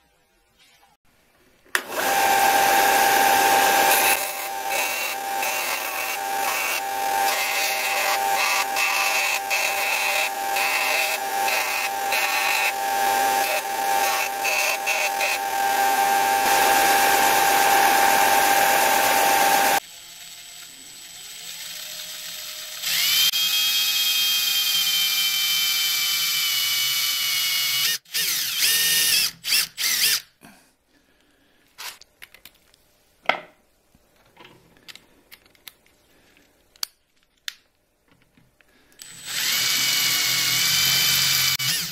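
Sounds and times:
belt sander grinding: 1.8 - 19.8
rotary tool whining: 1.8 - 30.3, 39.0 - 41.9.

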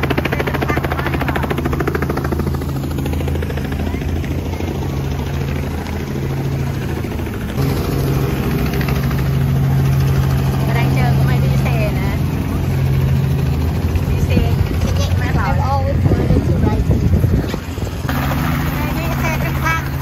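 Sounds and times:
helicopter rotor pulsing: 0.0 - 20.0
loud steady motor hum: 0.0 - 20.0
low engine hum: 0.0 - 20.0.

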